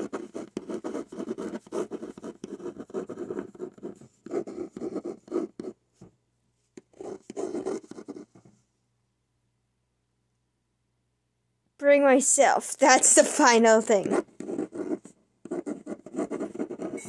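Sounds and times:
pen scratching on paper: 0.0 - 5.8, 6.8 - 8.3, 13.0 - 17.0.

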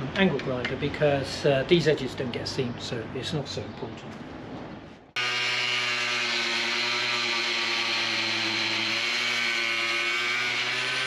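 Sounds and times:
angle grinder cutting board: 5.2 - 11.0.

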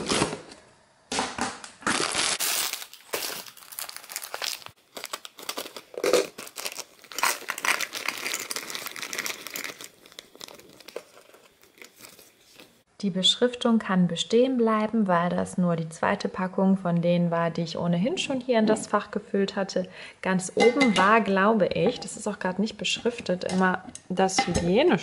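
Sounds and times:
plastic bag crinkling: 1.8 - 12.8
chips rattling into a tin: 2.4 - 12.3.

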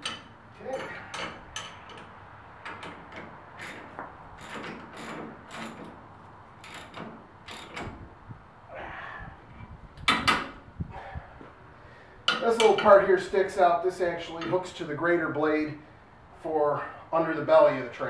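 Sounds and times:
wrench ratcheting on bolt: 0.0 - 5.9, 6.6 - 7.9.

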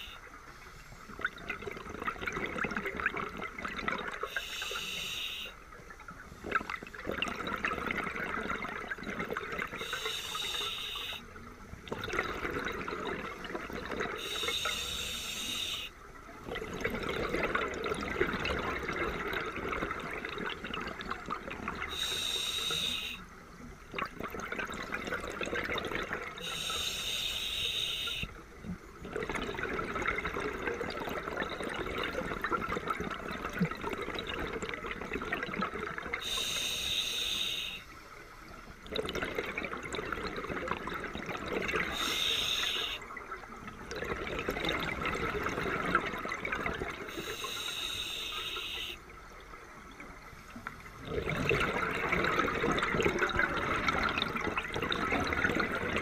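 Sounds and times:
exhaled air bubbling: 0.9 - 5.1, 5.8 - 37.8, 38.6 - 56.0
regulator hissing inhale: 4.3 - 5.6, 9.8 - 11.2, 14.2 - 15.9, 21.9 - 23.2, 26.4 - 28.3, 36.2 - 38.0, 41.9 - 43.0, 47.1 - 49.0.

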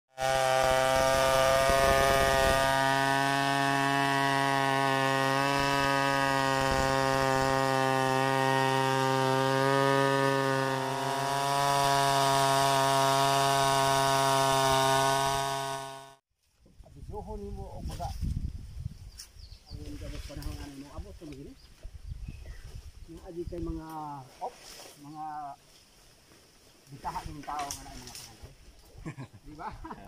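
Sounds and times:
chainsaw cutting log at full throttle: 0.1 - 16.2.

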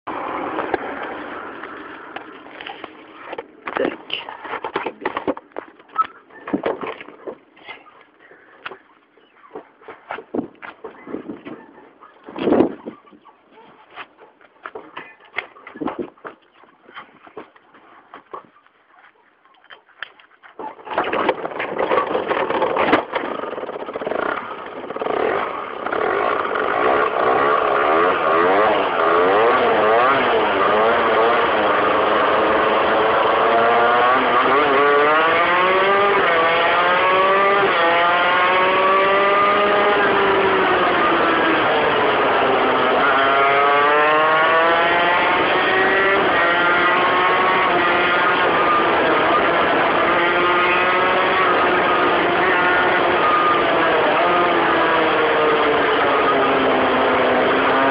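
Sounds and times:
moped engine revving: 20.8 - 57.9.

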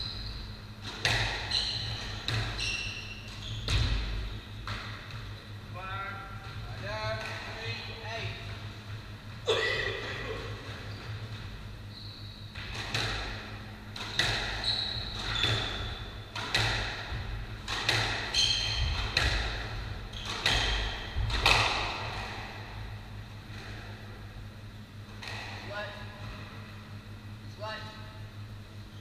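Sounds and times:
squash ball hitting walls: 0.8 - 2.6, 3.2 - 5.3, 12.5 - 24.3
trainers squeaking on wooden floor: 14.5 - 16.1.

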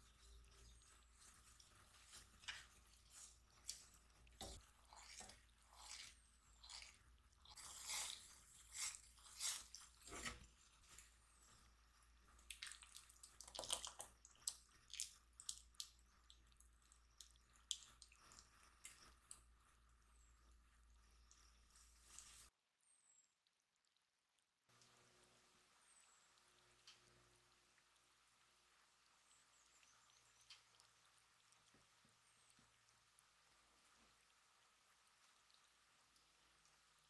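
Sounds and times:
spatula scraping saucepan: 0.1 - 10.7.

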